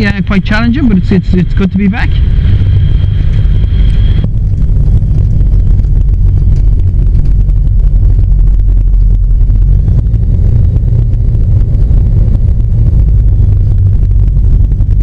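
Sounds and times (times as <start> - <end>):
aircraft engine and propeller rumble: 0.0 - 15.0.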